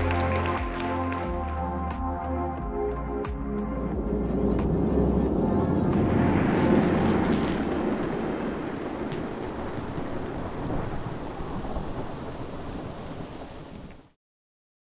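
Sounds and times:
low rumbling soundtrack: 0.0s - 11.8s.

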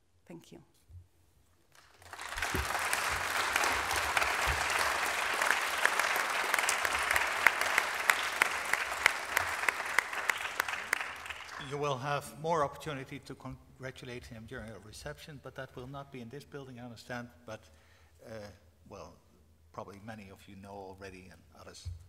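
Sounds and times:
audience applauding: 1.7s - 11.9s.

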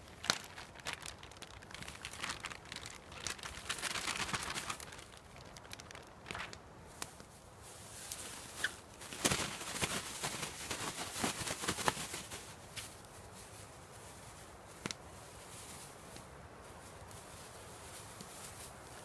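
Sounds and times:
plastic bag crinkling and rustling: 0.0s - 13.1s.

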